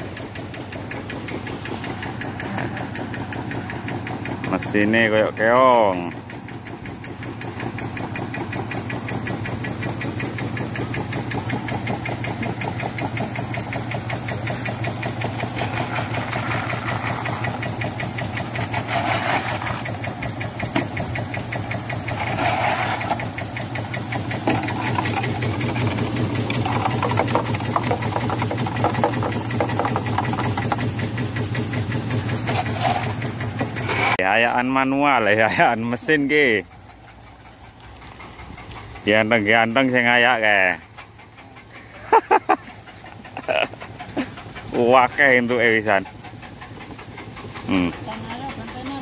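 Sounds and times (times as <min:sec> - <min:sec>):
motor drone: 0:00.0 - 0:34.2, 0:46.7 - 0:49.0.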